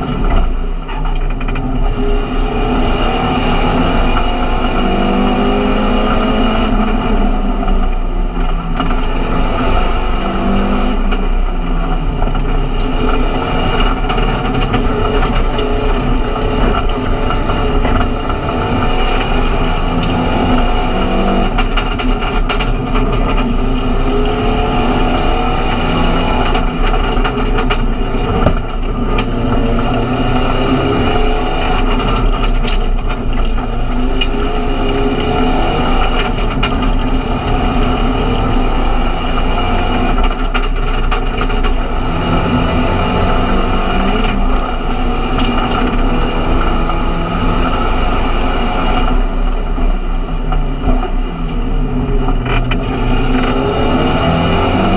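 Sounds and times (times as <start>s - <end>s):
race car engine revving: 0.0s - 54.9s
road and wind noise: 0.0s - 54.9s.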